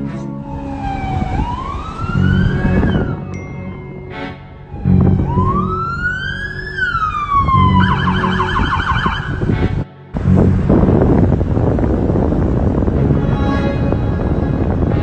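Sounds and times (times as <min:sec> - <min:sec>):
emergency vehicle siren: 0:00.0 - 0:09.8
steady low hum: 0:00.0 - 0:15.0.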